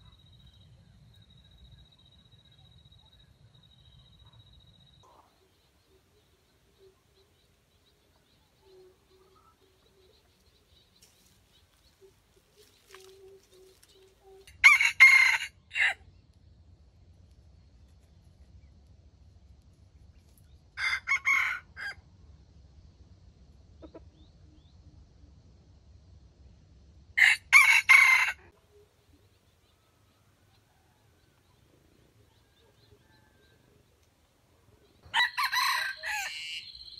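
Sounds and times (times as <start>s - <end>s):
rooster crowing: 14.5s - 16.0s, 20.8s - 22.0s, 27.2s - 28.5s, 35.1s - 36.9s.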